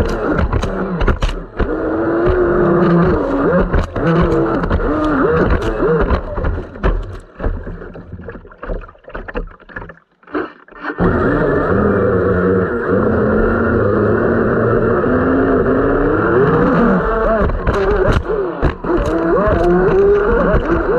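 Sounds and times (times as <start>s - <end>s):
electric motor whining: 0.0s - 7.9s, 10.7s - 20.9s
water slapping against hull: 0.0s - 10.9s.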